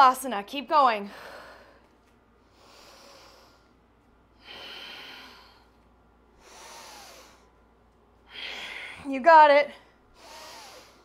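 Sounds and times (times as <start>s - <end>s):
woman breathing with effort: 1.0s - 3.8s, 4.4s - 9.1s, 9.8s - 11.0s.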